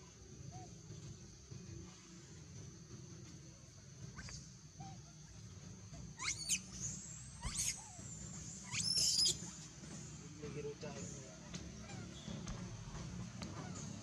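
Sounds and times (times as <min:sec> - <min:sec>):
monkeys squealing: 0:06.2 - 0:06.8, 0:07.4 - 0:09.4, 0:11.8 - 0:12.2.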